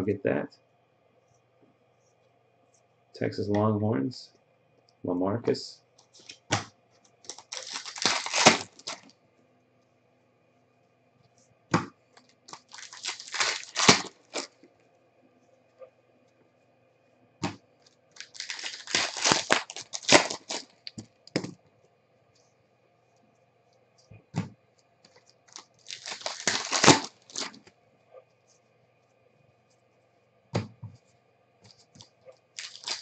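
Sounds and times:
plastic card sleeves crinkling: 7.2s - 9.1s, 12.2s - 14.6s, 17.8s - 21.0s, 25.1s - 27.7s, 31.7s - 33.0s.

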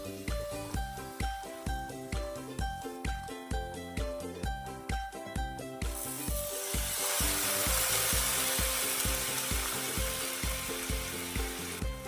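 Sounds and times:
oil sizzling in a frying pan: 0.0s - 1.7s, 5.8s - 12.0s
background music with beat: 0.0s - 12.0s.

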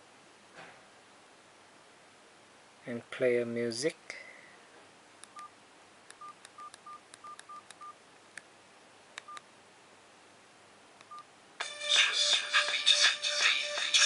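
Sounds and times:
phone keypad beeps: 6.2s - 8.0s.

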